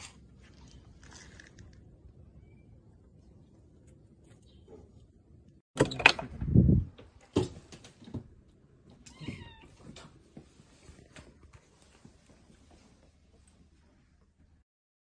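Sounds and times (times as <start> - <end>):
cat meowing: 9.0 - 9.8.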